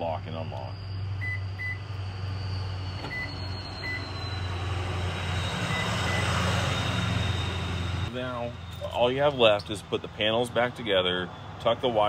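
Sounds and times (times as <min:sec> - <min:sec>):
short high electronic beeps: 0:00.6 - 0:07.8.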